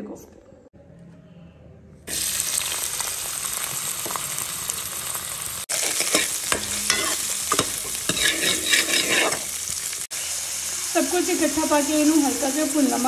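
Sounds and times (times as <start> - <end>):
onions sizzling in hot oil: 2.1 - 13.0
spatula scraping against pan: 5.7 - 9.6.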